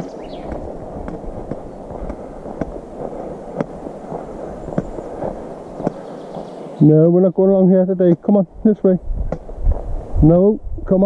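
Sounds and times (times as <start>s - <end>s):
low rustle and rumble: 0.0s - 7.1s
footsteps on forest path: 0.0s - 10.2s.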